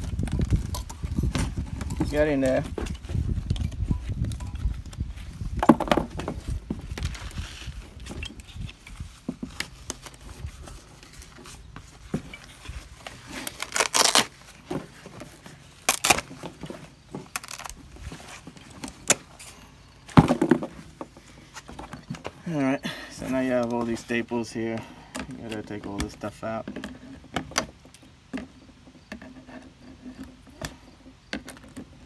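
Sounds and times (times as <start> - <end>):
scraping rips: 12.5 - 14.7, 15.8 - 16.5, 17.2 - 19.4.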